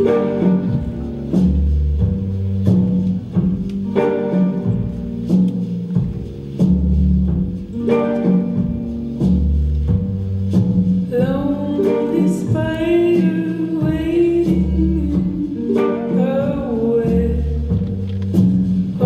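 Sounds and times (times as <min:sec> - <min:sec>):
plucked guitar: 0:00.0 - 0:19.0
steady bass line: 0:00.0 - 0:19.0
person singing: 0:11.1 - 0:17.7.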